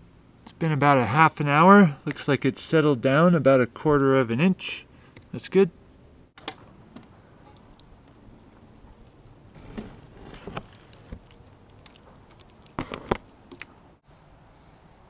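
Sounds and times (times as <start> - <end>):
tar splatting on steel: 9.2 - 13.8.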